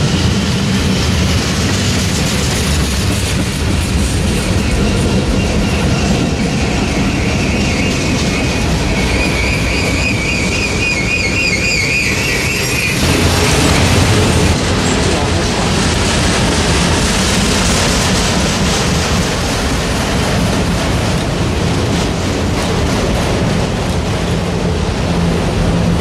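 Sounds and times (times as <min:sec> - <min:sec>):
train wheels rumbling on rails: 0:00.0 - 0:26.0
high-pitched wheel squeal: 0:04.8 - 0:13.0.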